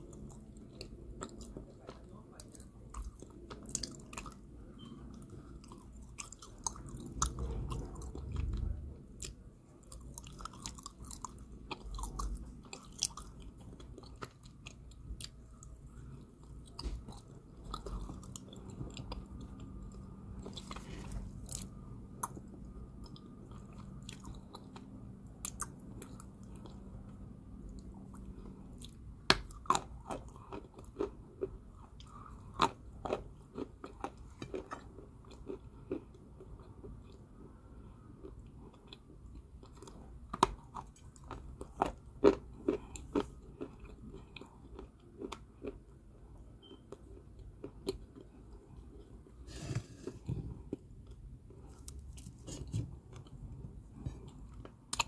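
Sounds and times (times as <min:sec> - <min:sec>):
crunchy chewing of clay: 0:00.0 - 0:55.0.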